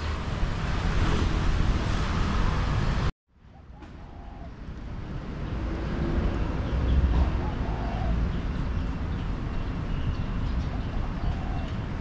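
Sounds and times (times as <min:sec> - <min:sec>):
city traffic rumble: 0:00.0 - 0:12.0.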